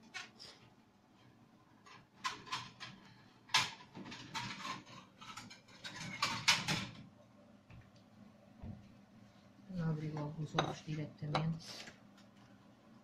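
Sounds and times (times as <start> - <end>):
kitchenware knocking and clinking: 2.0 - 7.0, 10.4 - 11.6.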